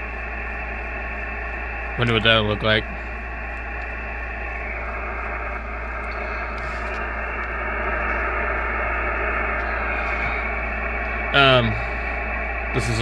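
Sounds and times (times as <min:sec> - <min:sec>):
radio static hiss: 0:00.0 - 0:13.0
steady low hum: 0:00.0 - 0:13.0.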